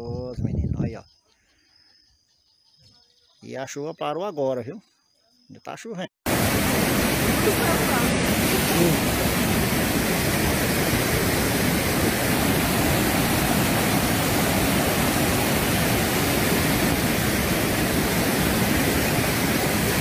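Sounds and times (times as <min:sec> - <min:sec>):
floodwater rushing over rocks: 0:06.3 - 0:20.0.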